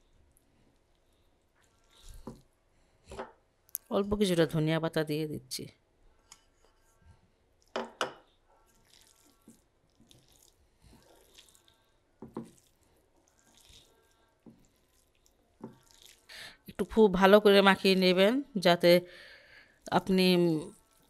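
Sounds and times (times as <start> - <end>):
hand squishing wet fish: 8.7 - 16.3.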